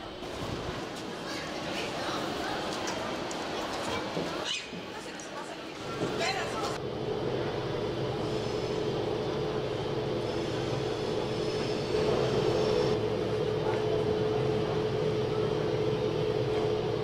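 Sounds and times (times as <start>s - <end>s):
electric locomotive droning: 5.7s - 17.0s.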